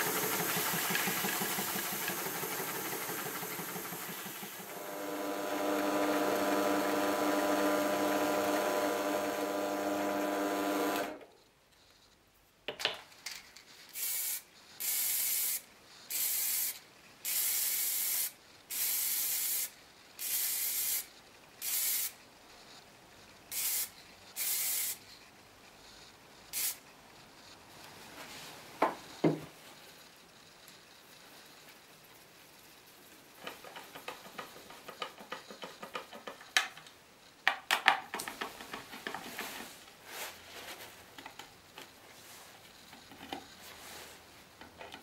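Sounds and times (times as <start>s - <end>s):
aerosol spray can hissing: 0.0s - 4.8s, 13.9s - 22.2s, 23.5s - 25.0s, 26.5s - 26.8s
drill press motor humming: 0.0s - 11.2s.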